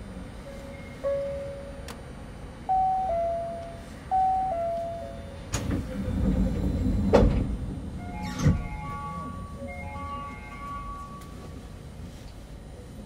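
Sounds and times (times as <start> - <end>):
doors closing clunk: 4.6 - 9.5
sliding doors rumbling shut: 5.4 - 9.6.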